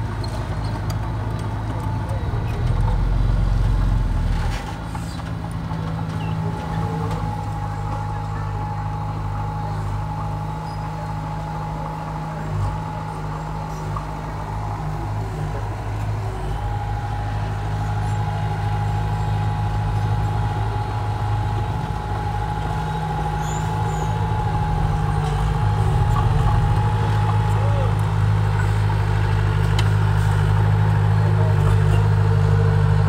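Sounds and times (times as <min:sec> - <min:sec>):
diesel engine running: 0:00.0 - 0:33.0
thin steady whine: 0:07.1 - 0:29.2.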